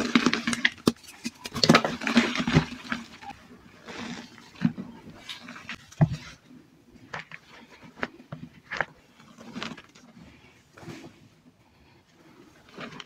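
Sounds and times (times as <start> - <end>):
hands crushing chalk: 0.0 - 2.8.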